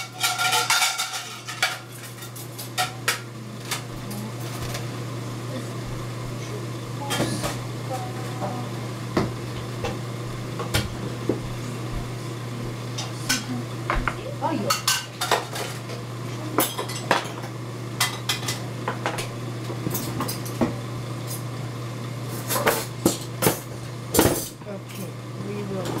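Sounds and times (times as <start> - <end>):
dishes and utensils clinking: 0.0 - 4.8, 13.0 - 21.4, 22.3 - 25.1
steady low hum: 0.0 - 25.9.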